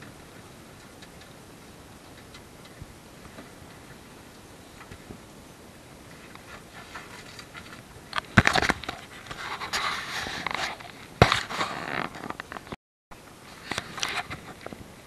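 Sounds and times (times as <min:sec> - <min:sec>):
wind noise: 0:00.0 - 0:15.0
scraping and rustling on housing: 0:06.2 - 0:12.7.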